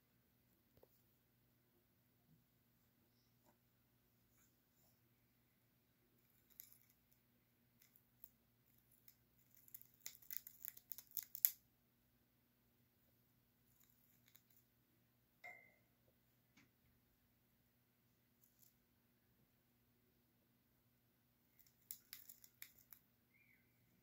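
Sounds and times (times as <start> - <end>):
bird chewing wooden stick: 8.8 - 11.6, 21.6 - 23.0.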